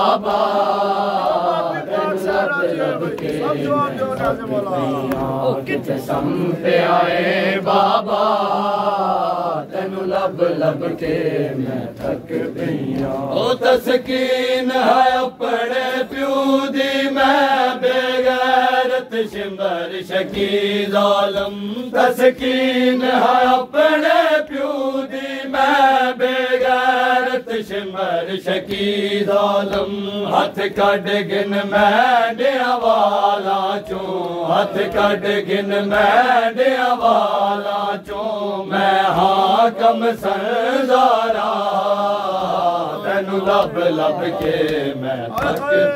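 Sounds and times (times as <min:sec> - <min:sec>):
men chanting a lament: 0:00.0 - 0:45.9
hand slaps on chests: 0:00.2 - 0:06.4, 0:11.8 - 0:14.4, 0:19.2 - 0:23.7, 0:28.4 - 0:38.4, 0:41.4 - 0:45.9.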